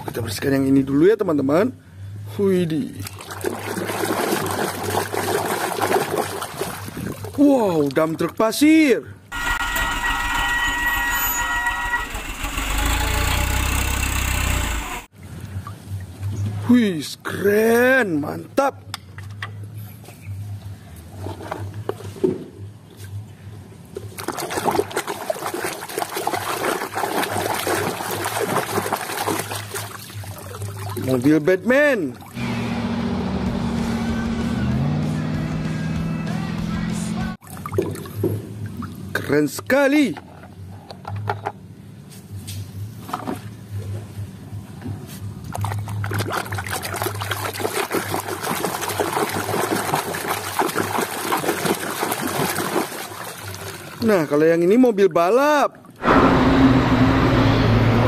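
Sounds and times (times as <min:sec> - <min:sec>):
water sloshing in plastic tub: 0:03.0 - 0:08.3, 0:24.0 - 0:31.4, 0:37.4 - 0:39.4, 0:44.9 - 0:54.1.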